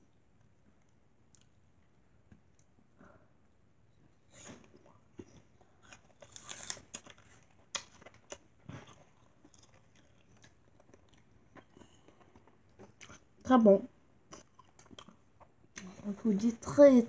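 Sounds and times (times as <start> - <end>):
chewing crisp apple: 4.4 - 13.4, 14.3 - 16.0.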